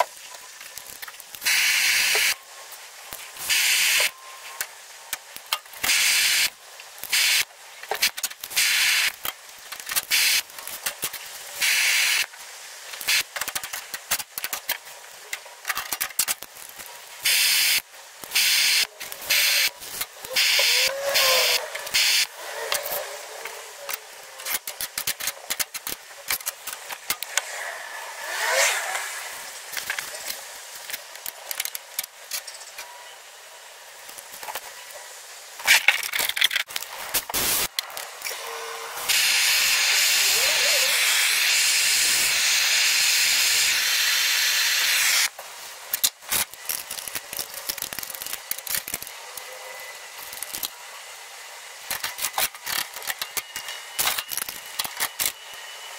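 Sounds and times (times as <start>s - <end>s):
loud steady hiss: 0.0s - 55.9s
gas torch hissing: 1.3s - 2.4s, 3.1s - 4.2s, 4.8s - 9.3s, 10.0s - 12.3s, 17.2s - 23.0s, 37.1s - 49.0s.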